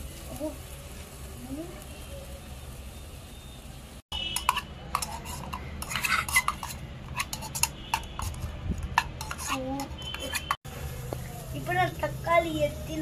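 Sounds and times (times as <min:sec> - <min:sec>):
metal spoon scraping steel pot: 0:04.2 - 0:10.6.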